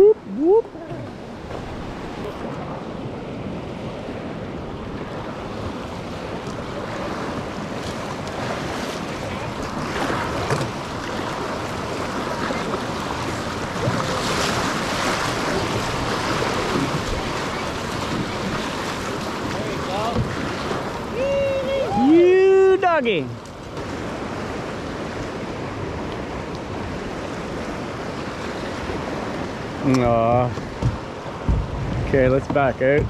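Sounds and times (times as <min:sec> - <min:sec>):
rushing whitewater: 0:00.0 - 0:33.0
wind buffeting microphone: 0:23.8 - 0:33.0.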